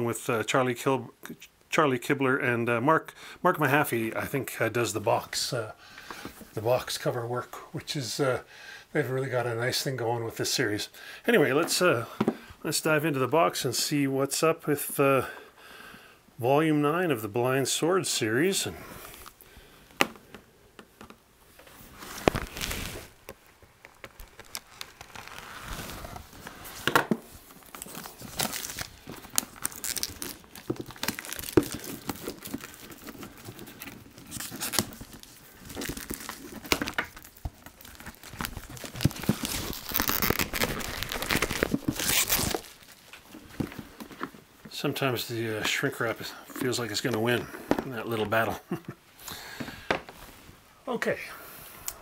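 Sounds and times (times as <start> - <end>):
shrink wrap crinkling and tearing: 21.9 - 44.0.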